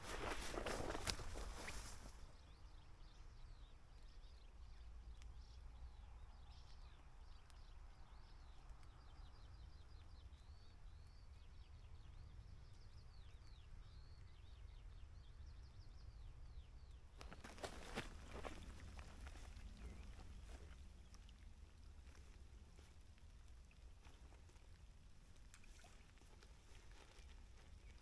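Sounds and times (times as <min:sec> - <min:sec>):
small birds chirping: 0:00.0 - 0:28.0.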